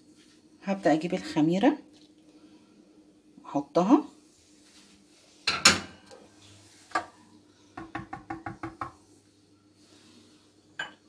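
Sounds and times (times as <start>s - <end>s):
utensil knocking mixing bowl: 7.8s - 9.0s.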